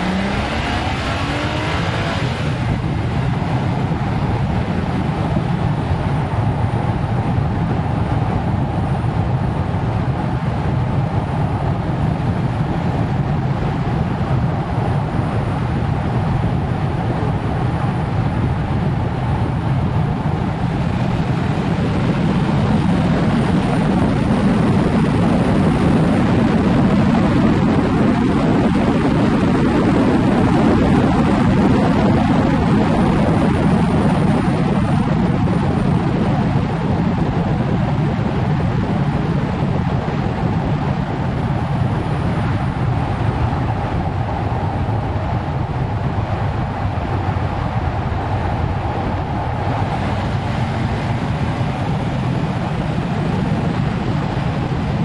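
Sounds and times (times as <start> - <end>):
wind roar: 0.0 - 55.0.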